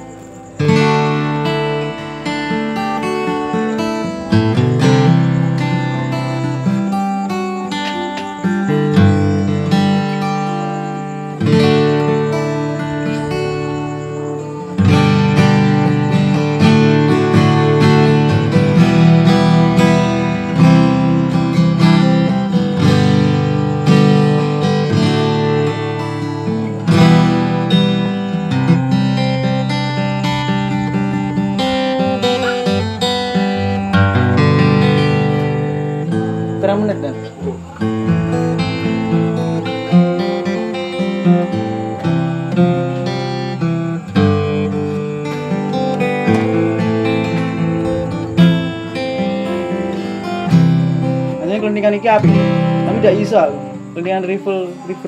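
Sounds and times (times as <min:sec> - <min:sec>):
fingerstyle acoustic guitar: 0:00.0 - 0:55.0.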